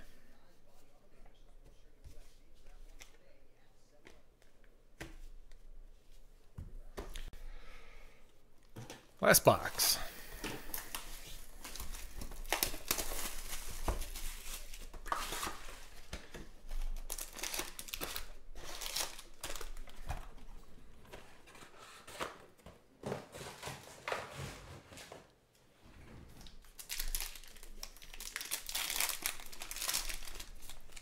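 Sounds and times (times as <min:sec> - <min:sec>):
foil card packs crinkling: 0:10.6 - 0:20.1, 0:26.6 - 0:31.0.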